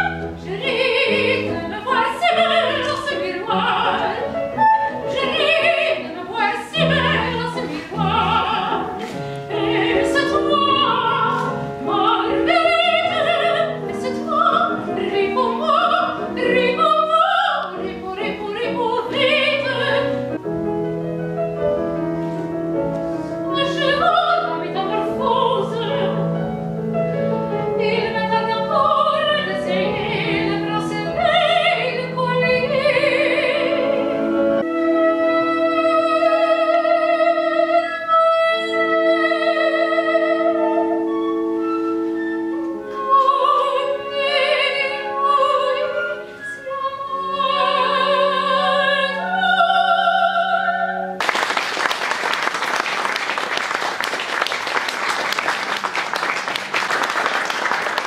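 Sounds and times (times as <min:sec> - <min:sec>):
instrumental accompaniment: 0:00.0 - 0:58.0
loud applause: 0:51.2 - 0:58.0.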